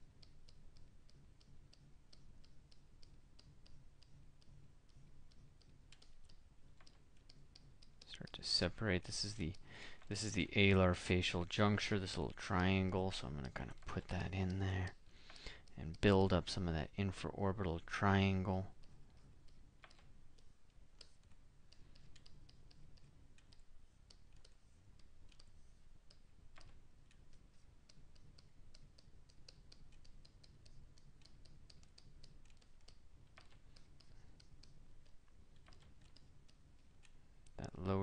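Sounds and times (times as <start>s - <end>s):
low room hum: 0.0s - 38.0s
computer keyboard clicking: 4.9s - 8.4s, 19.5s - 25.5s, 26.1s - 27.2s, 27.9s - 37.2s.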